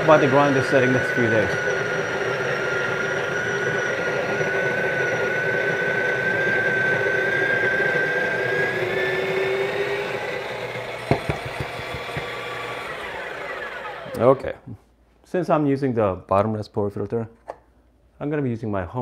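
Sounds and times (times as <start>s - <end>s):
coffee grinder running: 0.0s - 14.5s
knocks: 11.0s - 12.4s.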